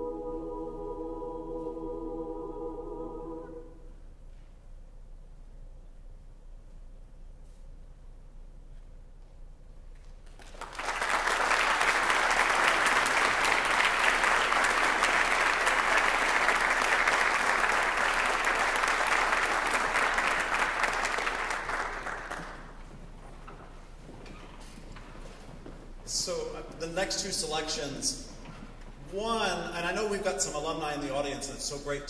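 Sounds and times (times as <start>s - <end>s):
audience applauding: 10.2s - 22.9s.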